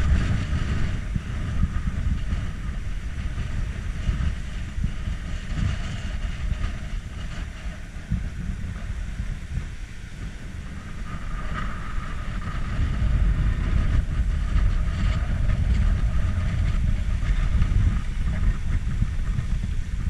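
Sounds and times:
wind buffeting microphone: 0.0 - 20.0.

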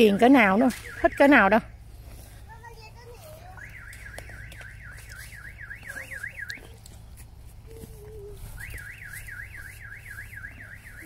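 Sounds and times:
warbling electronic alarm: 8.5 - 11.0.

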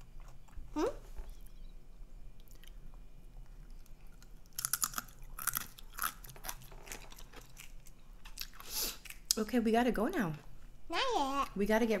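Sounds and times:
crisp chips crunching: 4.2 - 9.2.

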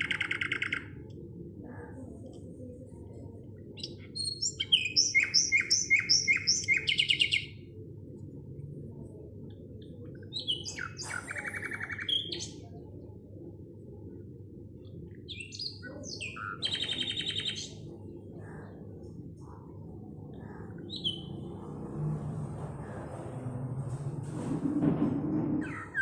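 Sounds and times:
songbird chirping: 3.2 - 7.7, 9.8 - 13.1, 14.8 - 21.7.

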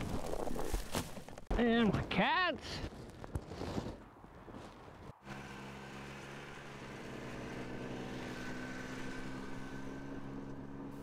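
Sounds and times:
snowmobile engine running: 5.3 - 11.0.

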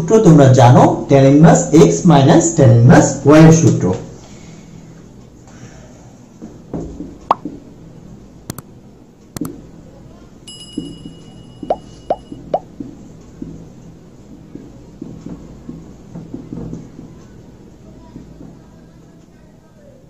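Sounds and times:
short bell-like chime: 10.5 - 12.1.

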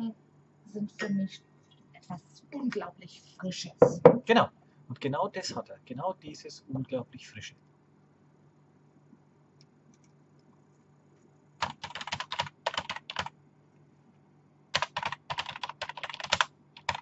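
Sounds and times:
fast typing on keyboard: 11.6 - 13.3, 14.7 - 17.0.

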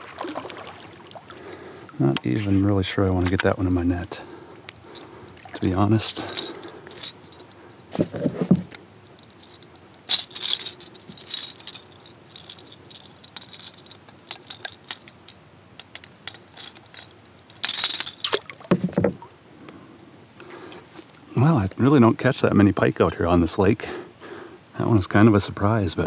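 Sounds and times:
pliers clinking on metal hooks: 9.1 - 18.5
dull knocks: 18.6 - 19.3.

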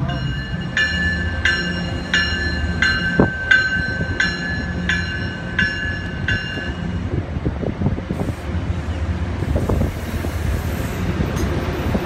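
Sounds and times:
train bell ringing: 0.0 - 7.2
low rumble of passing train: 0.0 - 12.0.

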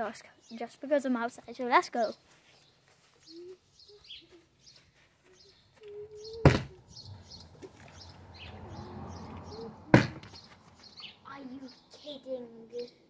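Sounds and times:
small birds chirping: 0.0 - 13.0
sharp thud: 6.4 - 6.8, 9.9 - 10.5.

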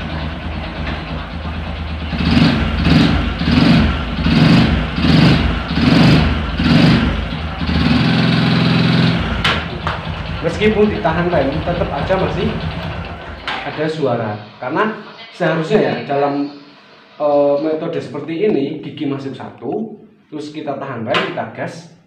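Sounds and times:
motorcycle engine revving: 0.0 - 13.7.

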